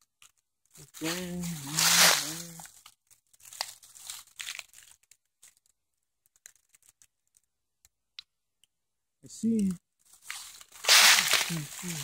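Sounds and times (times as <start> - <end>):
footsteps crunching through dry leaves: 0.8 - 2.8, 3.4 - 4.8, 10.1 - 12.0.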